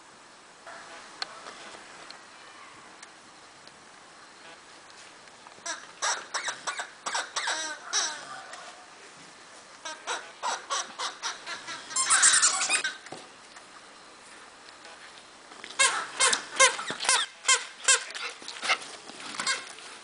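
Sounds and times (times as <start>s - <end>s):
squeaky dog toy squeaking: 5.6s - 8.3s, 9.9s - 13.0s, 15.8s - 18.3s.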